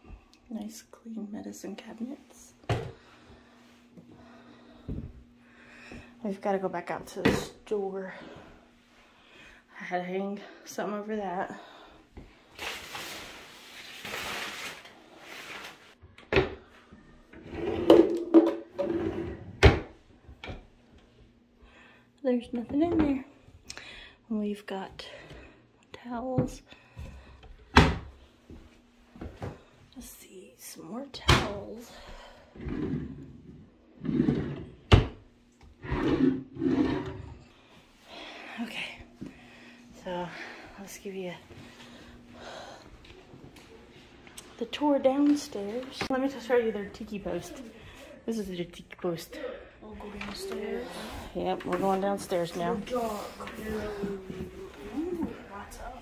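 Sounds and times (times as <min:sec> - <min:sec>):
drawer scraping on runners: 0:17.4 - 0:18.1, 0:18.8 - 0:19.6, 0:32.6 - 0:33.2, 0:34.0 - 0:34.8, 0:35.8 - 0:37.4.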